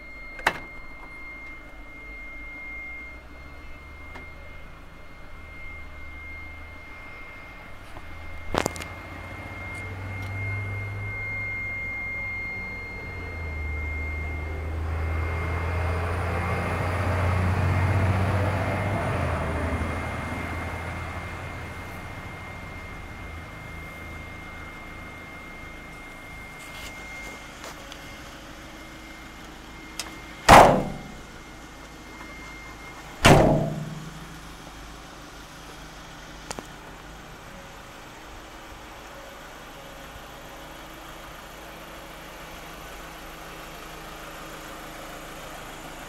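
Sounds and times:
vehicle door slamming: 0:30.4 - 0:31.3, 0:33.2 - 0:34.3.

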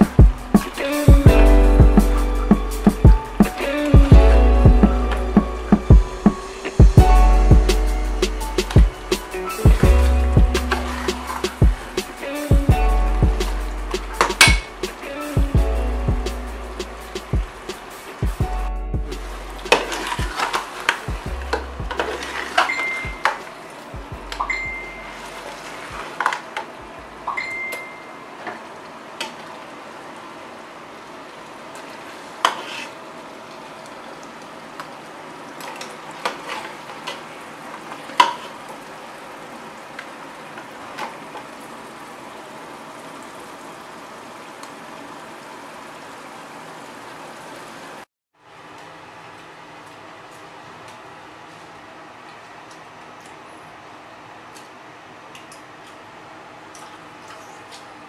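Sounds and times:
masala sizzling: 0:00.0 - 0:26.8, 0:28.6 - 0:48.0.

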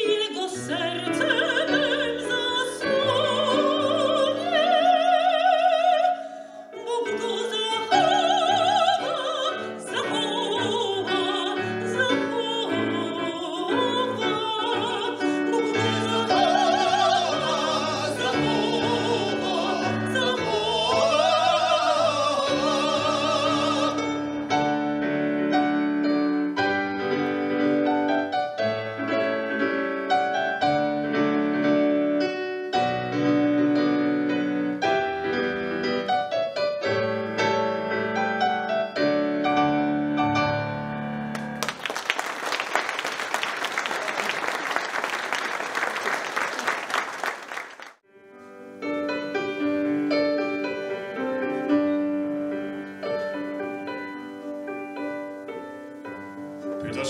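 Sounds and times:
piano playing: 0:00.0 - 0:06.1, 0:06.7 - 0:42.0, 0:48.0 - 0:57.0
audience applause: 0:41.3 - 0:48.0.

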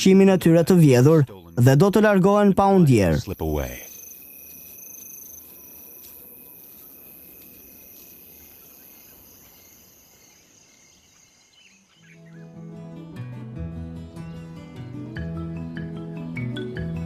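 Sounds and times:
night insects trilling: 0:00.0 - 0:12.6.

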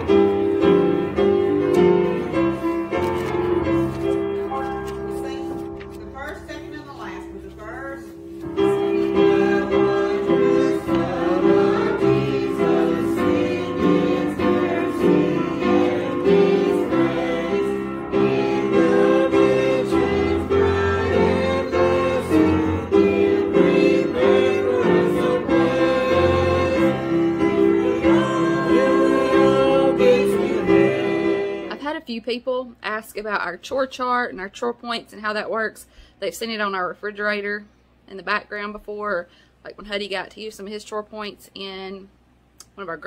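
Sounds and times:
congregation singing a hymn: 0:00.0 - 0:04.3, 0:08.0 - 0:31.8.

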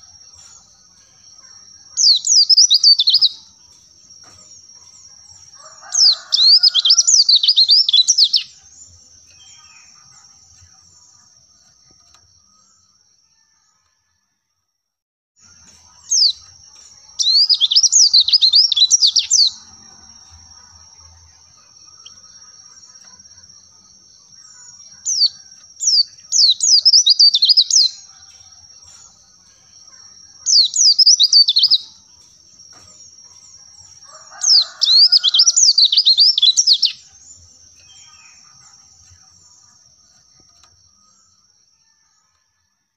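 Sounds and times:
bird twittering: 0:17.2 - 0:19.6, 0:30.4 - 0:31.9.

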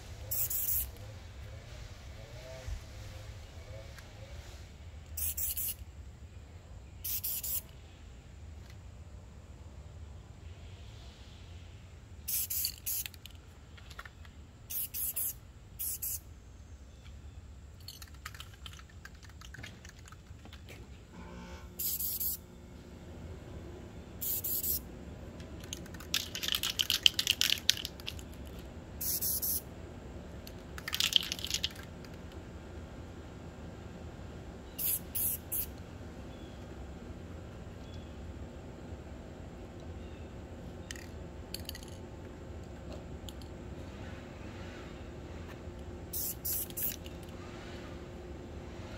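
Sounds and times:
spray paint can hissing: 0:00.3 - 0:01.0, 0:05.2 - 0:05.8, 0:07.0 - 0:07.7, 0:12.2 - 0:13.3, 0:14.7 - 0:16.2, 0:21.8 - 0:22.4, 0:24.2 - 0:24.8, 0:25.6 - 0:28.4, 0:29.0 - 0:29.6, 0:30.8 - 0:31.9, 0:34.8 - 0:35.7, 0:46.1 - 0:47.1.

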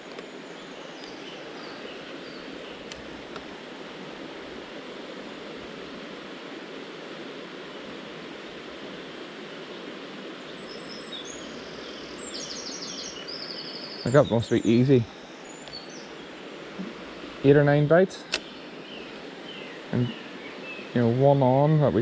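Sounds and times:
river water rushing: 0:00.0 - 0:22.0
bird chirping: 0:10.5 - 0:21.6.

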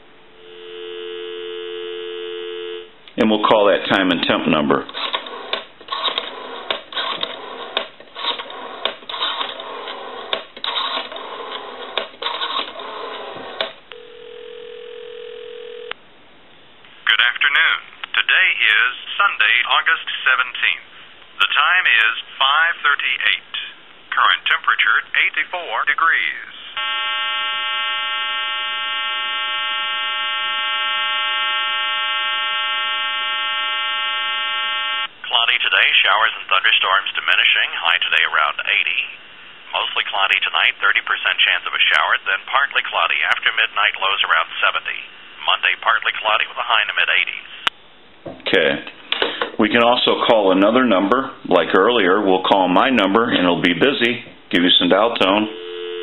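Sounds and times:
telephone ringback tone: 0:00.4 - 0:02.9, 0:14.0 - 0:15.9, 0:26.8 - 0:35.1, 0:55.5 - 0:56.0
spoken announcement: 0:03.1 - 0:04.9, 0:17.0 - 0:27.5, 0:34.8 - 0:47.7, 0:48.4 - 0:55.6.

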